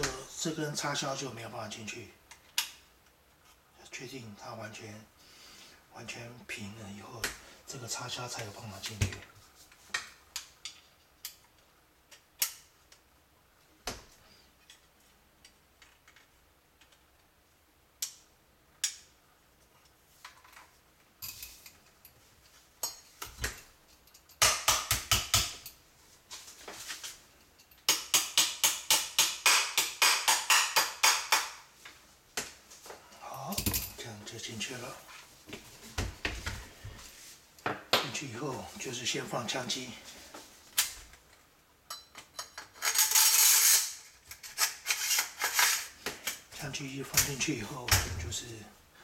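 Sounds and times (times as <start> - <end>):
metal parts clicking: 41.9 - 46.4.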